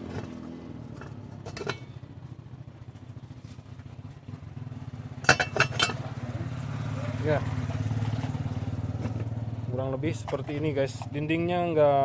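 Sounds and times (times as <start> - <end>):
metal clinks and knocks: 0.0 - 2.0, 5.2 - 6.1
low engine hum: 0.0 - 12.0.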